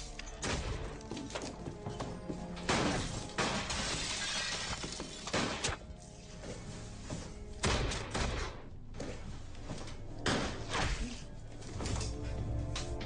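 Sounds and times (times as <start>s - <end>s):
film music score: 0.0s - 13.0s
glass shattering: 2.7s - 5.6s.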